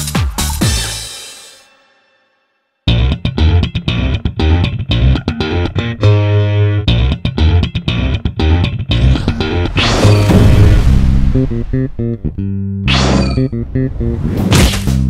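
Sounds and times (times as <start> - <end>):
electric guitar and bass riff: 2.9 - 14.2.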